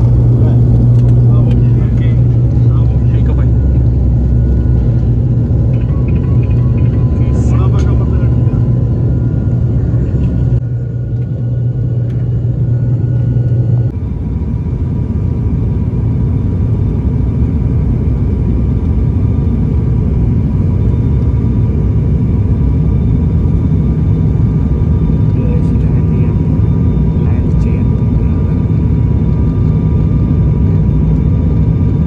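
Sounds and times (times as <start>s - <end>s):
faint steady whine: 0.0s - 17.0s
airliner engine rumble: 0.0s - 32.0s.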